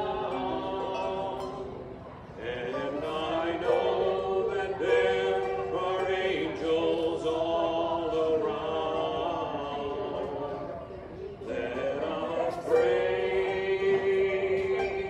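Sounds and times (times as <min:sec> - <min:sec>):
people singing a worship song: 0:02.4 - 0:10.5, 0:11.5 - 0:15.0.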